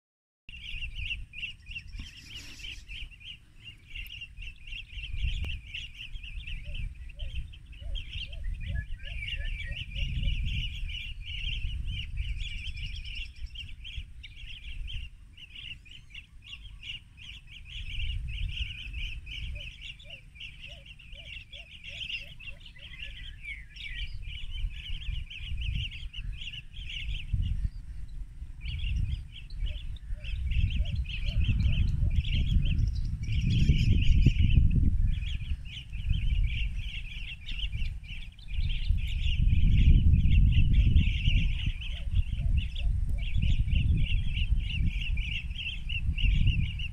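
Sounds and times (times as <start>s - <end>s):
birds trilling chirps: 0.5s - 46.9s.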